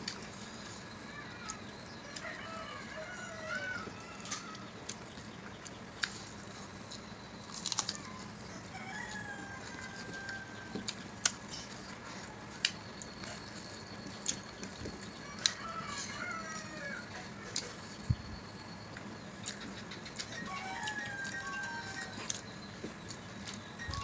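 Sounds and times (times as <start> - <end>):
birds calling: 0.0 - 24.0
chewing clicks and lip smacks: 12.6 - 15.6, 19.0 - 21.4.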